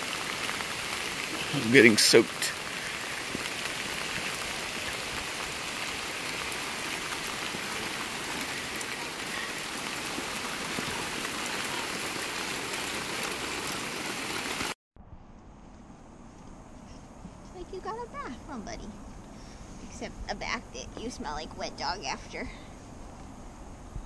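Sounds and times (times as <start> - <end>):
heavy rain pouring: 0.0 - 14.8
raindrops ticking close by: 0.0 - 14.8.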